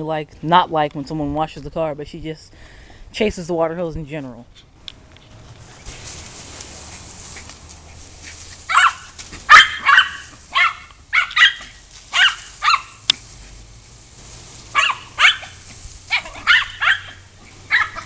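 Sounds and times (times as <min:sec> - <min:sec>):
small dog yapping: 0:08.2 - 0:13.1, 0:14.7 - 0:18.0.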